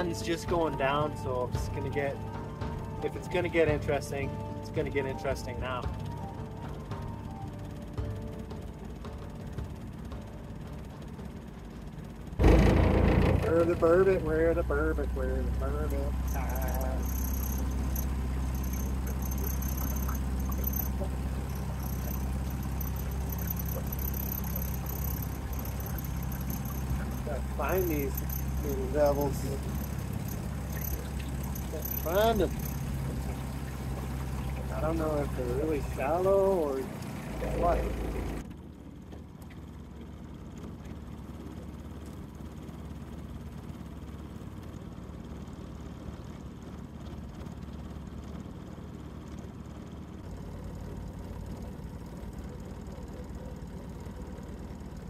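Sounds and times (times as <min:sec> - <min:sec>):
outboard motor running: 0:00.0 - 0:55.0
faint ticks: 0:16.3 - 0:27.3, 0:29.5 - 0:34.7.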